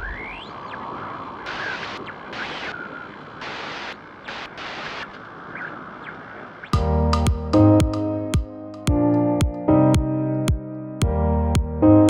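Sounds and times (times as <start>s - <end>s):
rising whistling sweep: 0.0s - 3.2s
hissing static: 0.0s - 7.1s.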